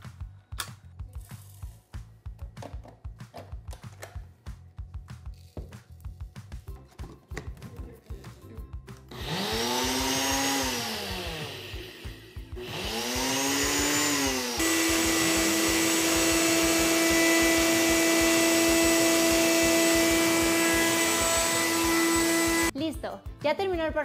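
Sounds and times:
blender grinding oats: 9.1 - 22.7
second blender grinding: 9.2 - 22.7.

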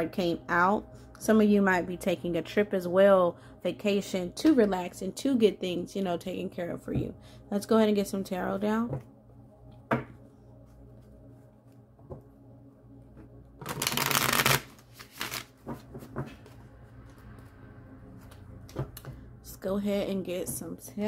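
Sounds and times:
cards riffling: 13.6 - 15.6.

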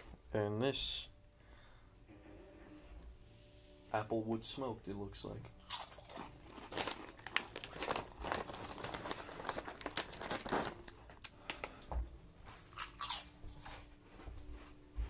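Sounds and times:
potato chips crunching: 5.6 - 11.8, 12.5 - 13.8
foil bag crinkling: 5.7 - 11.8.

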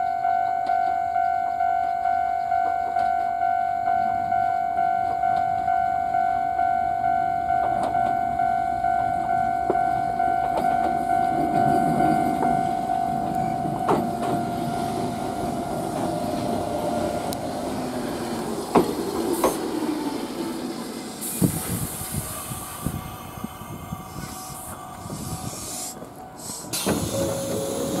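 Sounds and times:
train brakes squealing: 7.6 - 28.0
air hiss: 19.3 - 28.0.

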